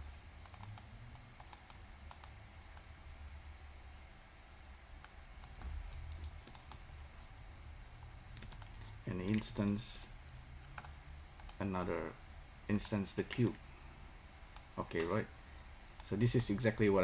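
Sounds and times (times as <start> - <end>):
steady low hum: 0.0 - 17.0
mouse and keyboard clicks: 0.4 - 2.9, 8.4 - 11.6.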